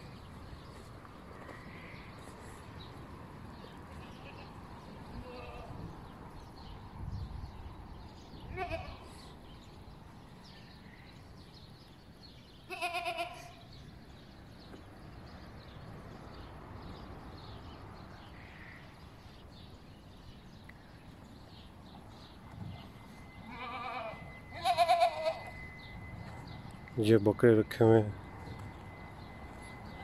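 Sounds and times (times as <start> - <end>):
goats bleating: 12.7 - 13.6, 23.4 - 25.5.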